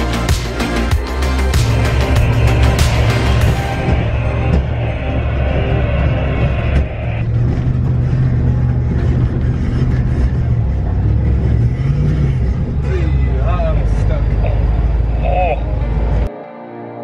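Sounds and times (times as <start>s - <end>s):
music playing: 0.0s - 9.3s, 12.8s - 17.0s
truck engine rumbling: 0.0s - 16.3s.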